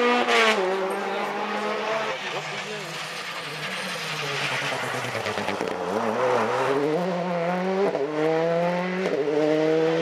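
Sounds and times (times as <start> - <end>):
rally car engine accelerating: 0.0 - 10.0.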